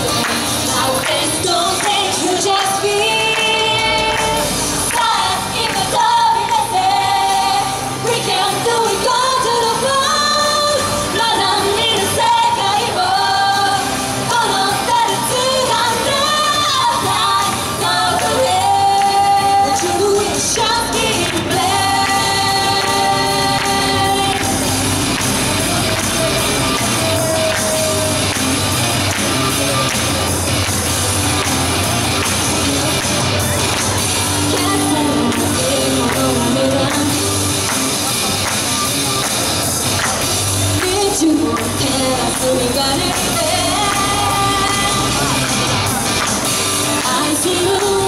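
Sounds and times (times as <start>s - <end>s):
pop music: 0.0s - 48.0s
women singing into microphones: 0.6s - 25.2s, 34.2s - 37.4s, 40.8s - 45.4s, 46.7s - 48.0s.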